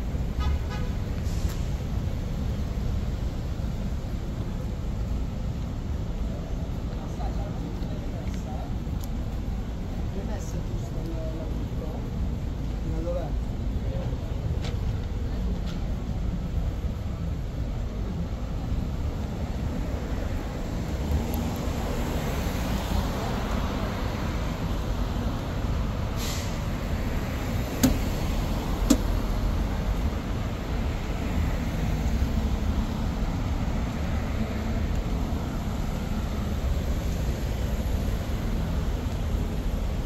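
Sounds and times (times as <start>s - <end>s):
traffic rumble: 0.0s - 40.0s
short hiss: 1.2s - 1.8s, 26.1s - 26.7s.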